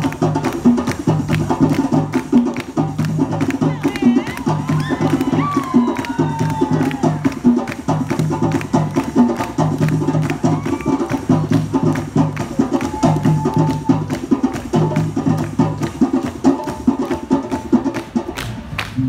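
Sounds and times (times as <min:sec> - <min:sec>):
percussion-heavy dance music: 0:00.0 - 0:19.0.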